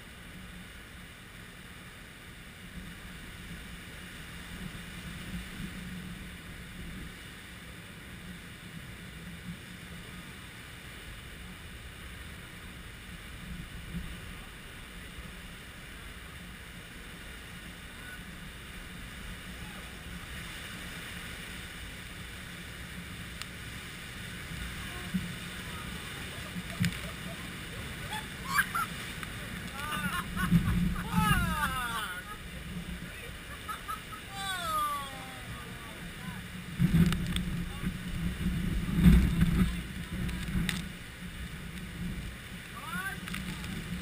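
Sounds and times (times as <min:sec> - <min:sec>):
wind noise on microphone: 0:02.7 - 0:44.0
surf breaking on rocks: 0:13.3 - 0:44.0.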